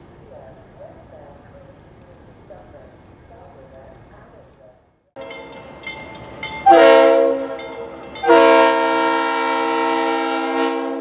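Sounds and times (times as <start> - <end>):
locomotive air horn: 6.6 - 11.0.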